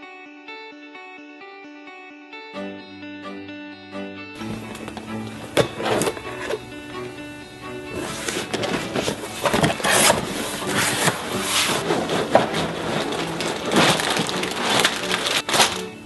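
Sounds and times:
cardboard scraping: 4.4 - 6.7, 7.8 - 16.0
plastic bags crinkling: 8.0 - 16.0.

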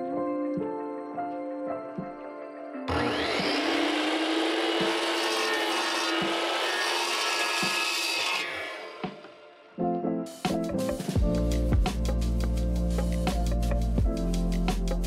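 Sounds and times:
miter saw cutting siding: 2.9 - 9.4.

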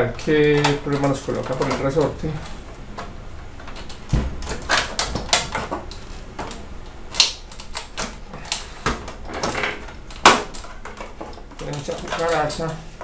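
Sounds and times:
sharp plastic crack: 0.0 - 12.8
plastic clicks and snaps: 0.2 - 9.2.

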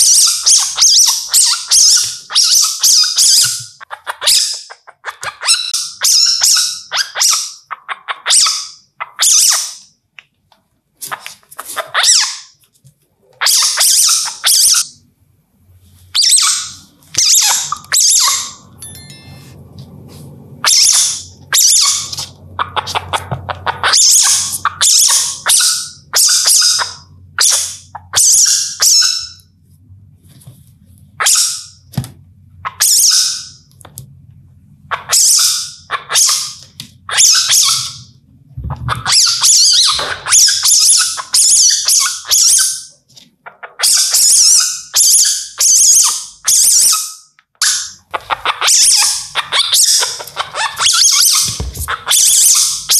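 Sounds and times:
civet high-pitched screeches: 16.1 - 19.6, 20.6 - 29.4, 43.8 - 52.9.

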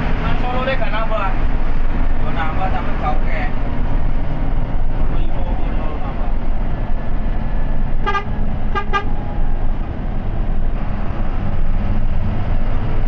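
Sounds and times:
bus engine and road rumble: 0.0 - 13.0
vehicle horn toots: 8.0 - 9.2.

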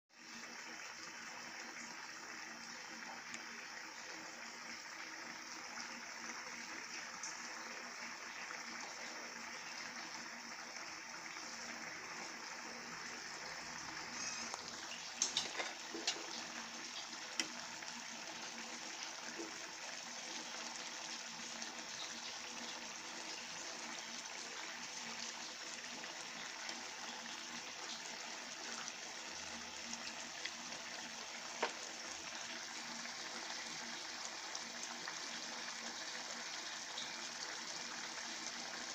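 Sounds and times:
liquid bubbling in pan: 0.2 - 38.9
ladle clinking against pan: 15.2 - 16.3.

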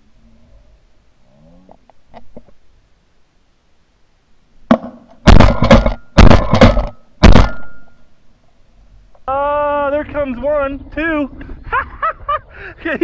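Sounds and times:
shotguns firing: 4.7 - 8.0.

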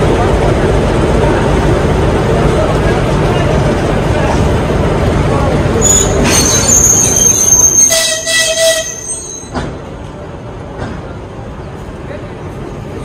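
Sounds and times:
train rumbling on rails: 0.0 - 13.0
metallic wheel squeal: 5.8 - 9.6.

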